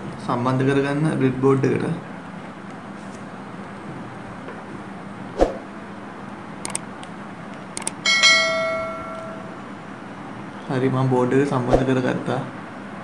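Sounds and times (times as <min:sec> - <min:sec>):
bell chime: 0:08.0 - 0:09.6.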